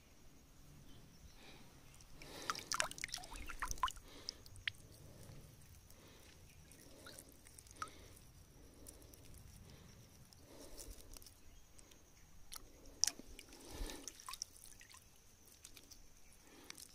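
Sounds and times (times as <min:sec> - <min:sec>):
small water splashes: 0:02.1 - 0:05.3, 0:06.0 - 0:08.2, 0:12.5 - 0:16.9.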